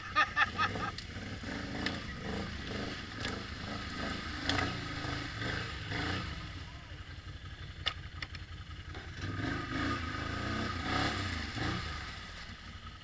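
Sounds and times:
atv engine running: 0:00.0 - 0:13.0.

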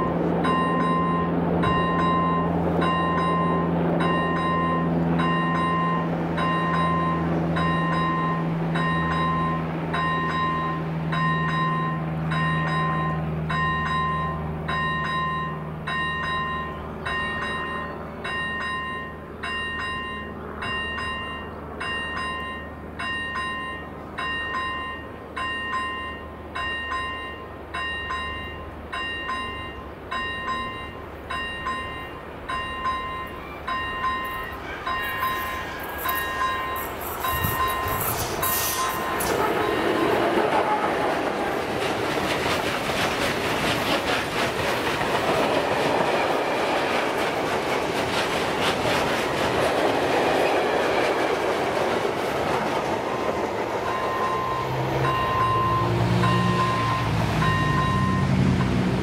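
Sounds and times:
level crossing warning bell: 0:00.0 - 0:43.0, 0:49.0 - 0:59.0
train rumble and drone: 0:00.0 - 0:59.0.

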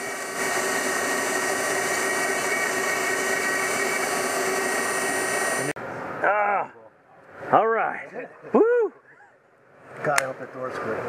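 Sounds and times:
rotary tool whining: 0:00.0 - 0:05.8.

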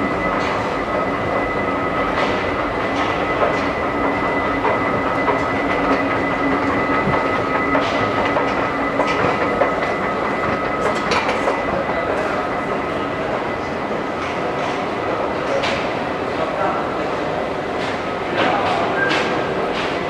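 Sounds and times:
high whine: 0:00.0 - 0:15.4
escalator machinery rumble: 0:00.0 - 0:20.0
escalator steps rattling: 0:00.2 - 0:13.4.

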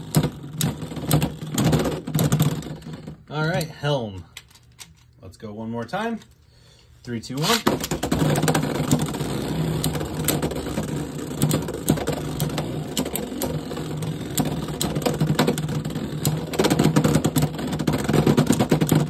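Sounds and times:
spinning tops whirring: 0:07.4 - 0:19.0.

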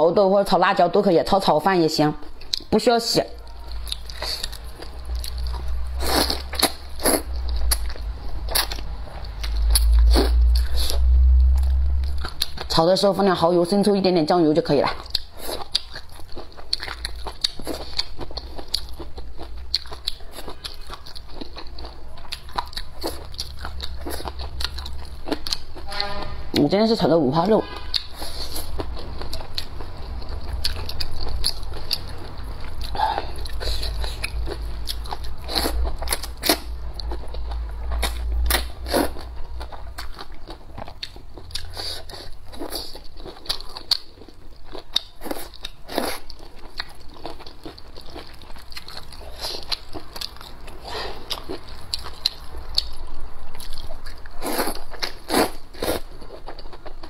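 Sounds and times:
chewing and crunching: 0:02.3 - 0:02.8, 0:03.4 - 0:12.8, 0:14.7 - 0:25.9, 0:27.8 - 0:57.0
low rumble: 0:03.4 - 0:12.7, 0:22.4 - 0:26.6.

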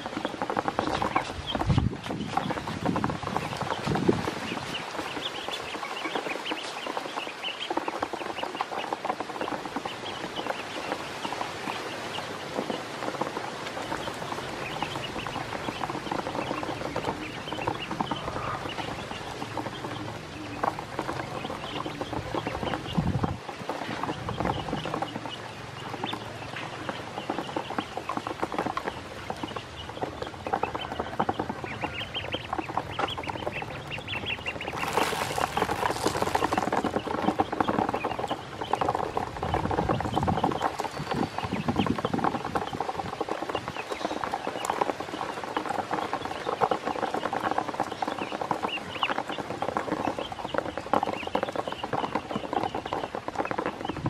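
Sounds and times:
ducklings peeping: 0:00.0 - 0:54.0.

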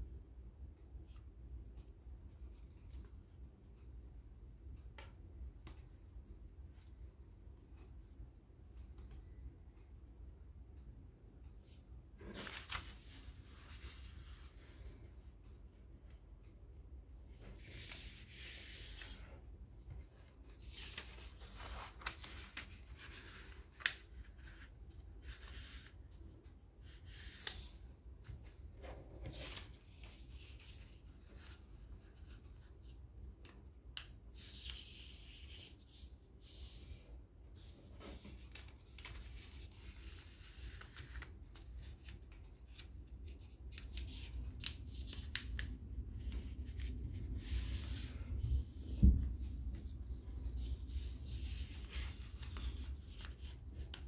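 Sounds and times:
low steady hum: 0:00.0 - 0:54.0
paper crinkling and creasing: 0:12.2 - 0:14.9, 0:17.3 - 0:54.0.

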